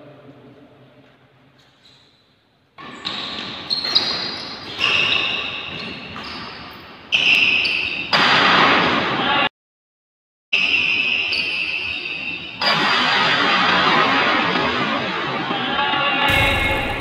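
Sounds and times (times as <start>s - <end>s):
shoes squeaking on floor: 1.5s - 8.3s.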